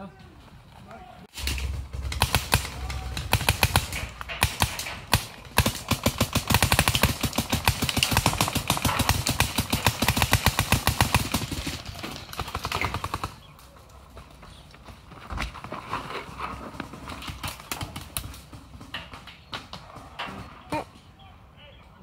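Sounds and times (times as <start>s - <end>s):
paintball gun firing: 1.3s - 13.4s.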